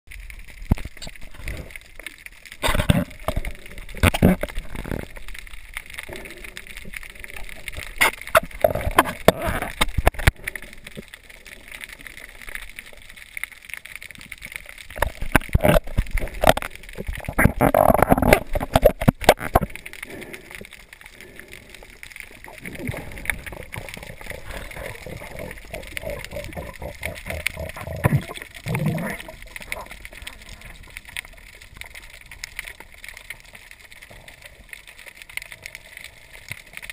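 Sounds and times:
underwater knocks and splashes: 0:00.1 - 0:05.9, 0:07.3 - 0:11.2, 0:12.6 - 0:19.8, 0:22.4 - 0:34.2
muffled underwater water sloshing: 0:00.1 - 0:36.9.

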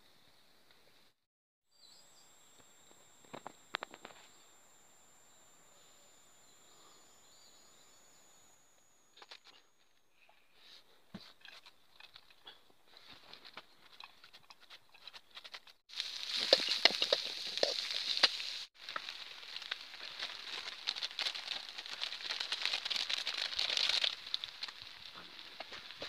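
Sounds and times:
wood campfire crackling: 0:15.6 - 0:26.0
food sizzling in a pan: 0:15.9 - 0:22.4.

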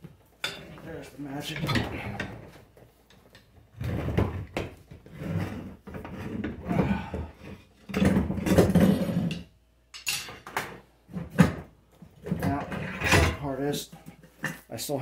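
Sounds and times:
rubber creaking and scraping on metal: 0:03.7 - 0:09.5.

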